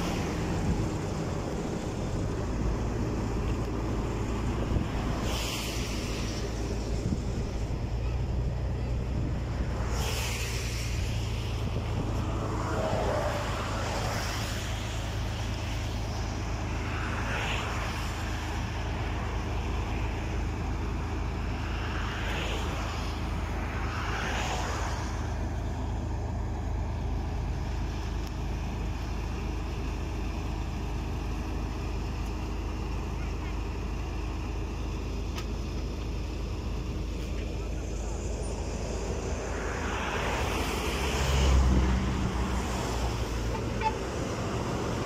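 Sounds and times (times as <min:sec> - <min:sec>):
hissing noise: 0:00.0 - 0:30.6
diesel engine humming: 0:00.0 - 0:45.0.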